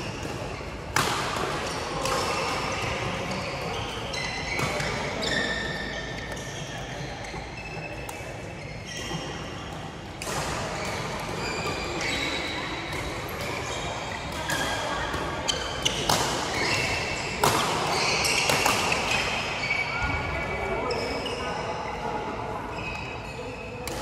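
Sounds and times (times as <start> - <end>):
court shoes squeaking: 0.0 - 24.0
racket striking shuttlecock: 17.4 - 19.1.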